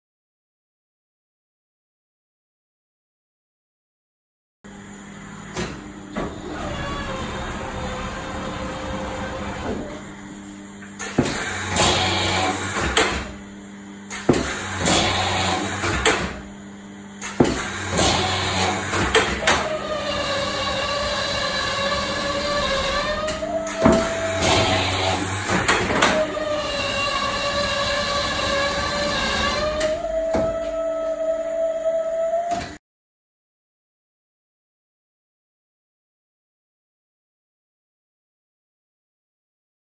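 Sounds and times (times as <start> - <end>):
drilling machine motor hum: 4.7 - 32.8.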